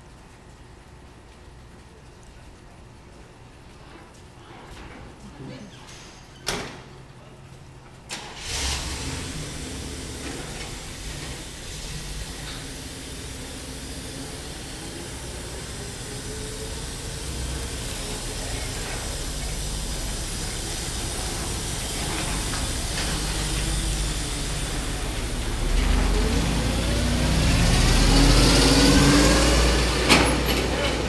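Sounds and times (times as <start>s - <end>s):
truck engine running: 8.5s - 31.0s.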